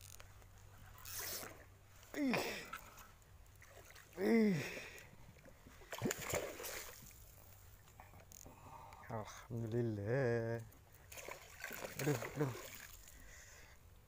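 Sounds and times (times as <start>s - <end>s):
fish splashing at water surface: 5.8s - 7.3s, 11.1s - 13.2s.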